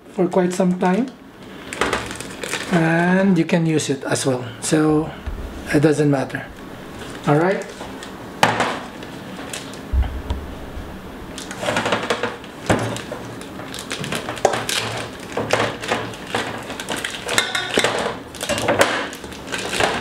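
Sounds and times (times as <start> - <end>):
rustling: 4.8 - 8.2, 8.8 - 15.1
low thump: 5.2 - 7.2, 9.9 - 11.3
dishes clattering: 17.3 - 18.9.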